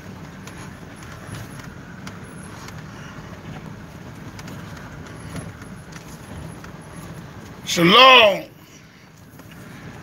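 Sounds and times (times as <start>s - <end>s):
light rattles and clicks: 0.0s - 7.6s
vehicle engine and road rumble: 0.0s - 10.0s.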